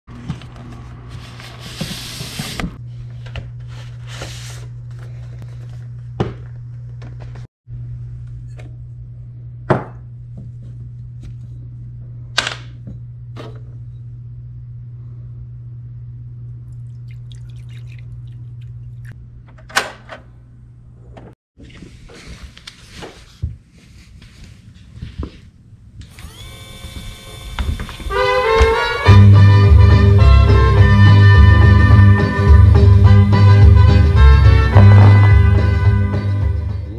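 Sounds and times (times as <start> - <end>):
low hum: 4.6 - 19.6
record sleeves rustling: 21.6 - 25.7.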